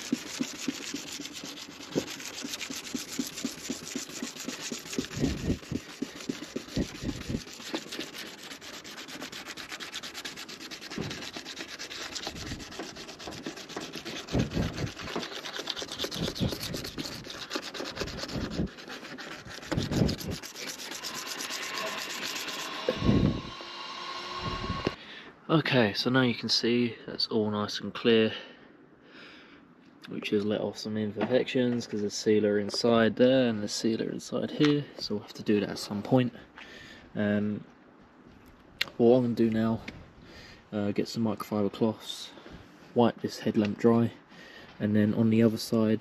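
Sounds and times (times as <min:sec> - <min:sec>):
scratchy sanding: 0:00.0 - 0:23.6.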